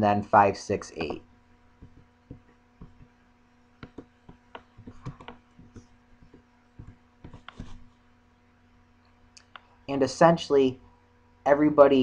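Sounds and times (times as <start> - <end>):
faint electrical hum: 0.0 - 12.0
keyboard typing: 1.8 - 3.2, 3.8 - 7.9.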